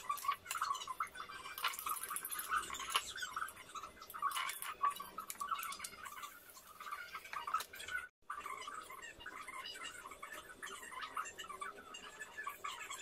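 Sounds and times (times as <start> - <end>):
metal spoon clinking and scraping: 0.0 - 8.0.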